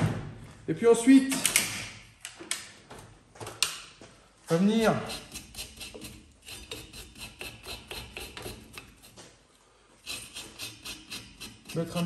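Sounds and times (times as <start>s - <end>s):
wire brush scrubbing metal: 4.8s - 9.2s, 10.0s - 12.0s.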